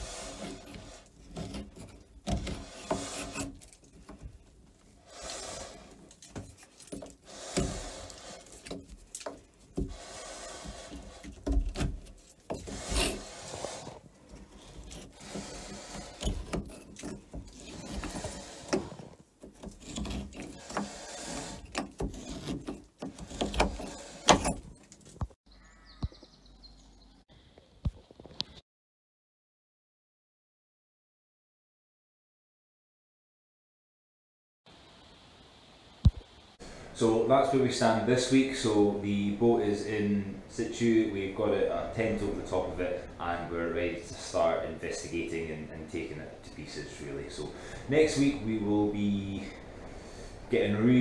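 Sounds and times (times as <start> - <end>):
scraper scraping paint off wood: 0.0 - 25.2.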